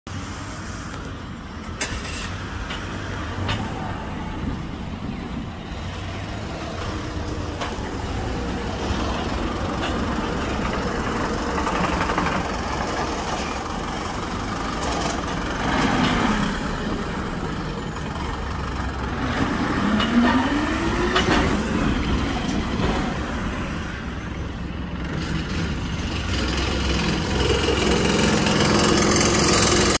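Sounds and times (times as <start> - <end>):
bus driving past: 0.1 - 30.0
truck driving past: 1.8 - 30.0
engine revving: 18.6 - 23.7, 25.0 - 30.0.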